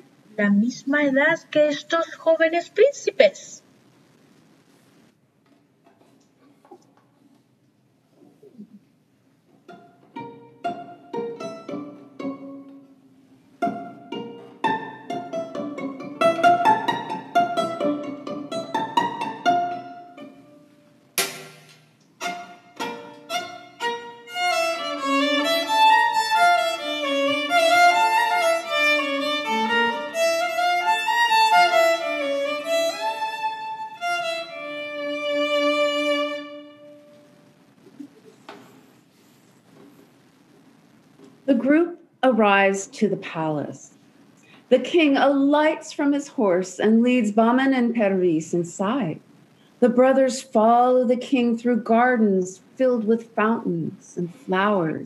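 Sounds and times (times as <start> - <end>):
solo violin playing: 10.2 - 20.7, 22.2 - 37.2
sharp knock: 21.2 - 21.9.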